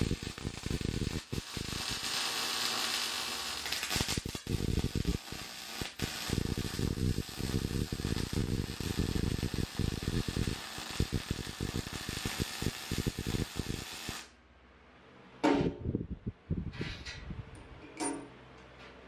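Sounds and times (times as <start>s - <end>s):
welding arc crackling: 0.0s - 14.3s.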